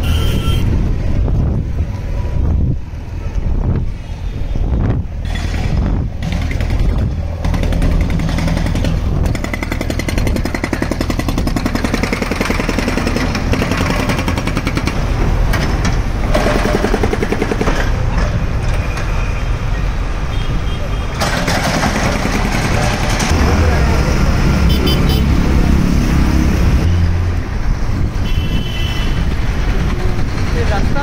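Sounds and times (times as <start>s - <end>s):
machinery engine rumble: 21.2s - 28.2s.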